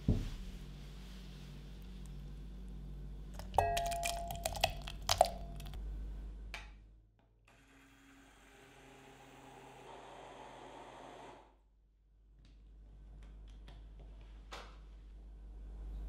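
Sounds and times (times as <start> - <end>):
liquid pouring: 3.4 - 5.8
saucepan clinking on glass jug: 3.4 - 5.8
glass ringing: 3.6 - 5.8.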